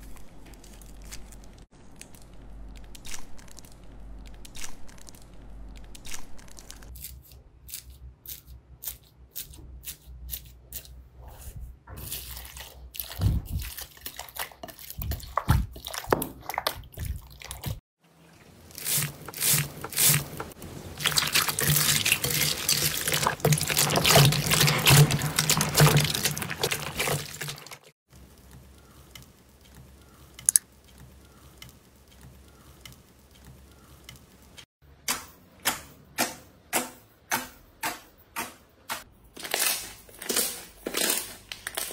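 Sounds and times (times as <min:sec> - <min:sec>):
wet squishing slime: 0:12.0 - 0:17.8, 0:21.0 - 0:34.1
crunchy slime crackling: 0:39.4 - 0:41.9.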